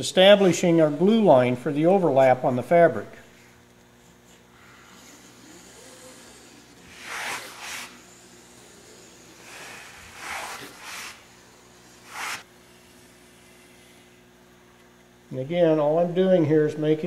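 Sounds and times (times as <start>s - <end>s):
pencil scratching on fabric: 5.0s - 11.3s, 12.0s - 12.5s.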